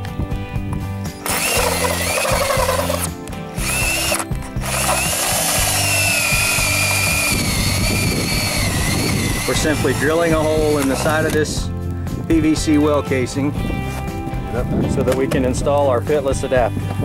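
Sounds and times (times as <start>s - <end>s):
power drill with hole saw whining: 1.1s - 11.4s.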